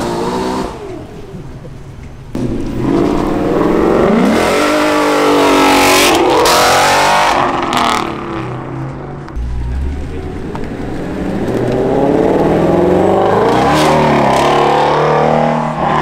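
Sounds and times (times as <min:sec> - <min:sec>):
car accelerating hard: 0:02.4 - 0:08.5, 0:11.0 - 0:16.0.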